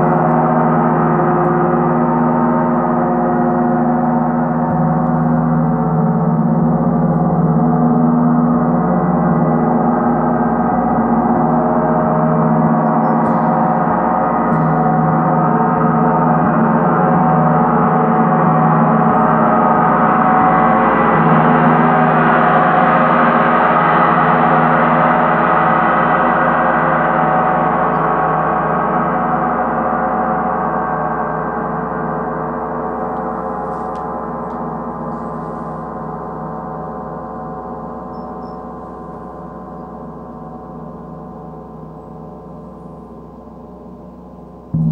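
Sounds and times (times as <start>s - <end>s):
deep gong played with mallet: 0.0s - 32.4s.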